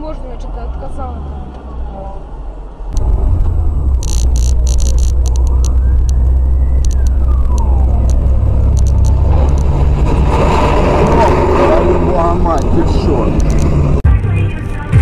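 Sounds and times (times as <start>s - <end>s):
car road rumble: 0.0s - 15.0s
faint rising and falling tone: 2.9s - 14.0s
sharp clicks: 3.0s - 9.8s, 12.6s - 13.8s.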